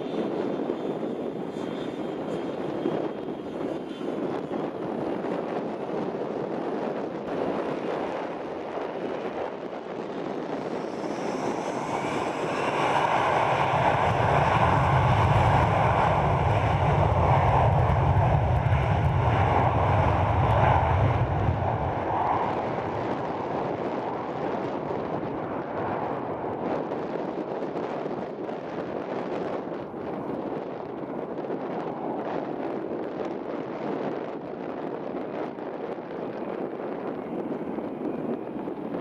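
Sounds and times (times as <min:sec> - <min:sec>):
jet engines whining and rumbling: 0:00.0 - 0:39.0.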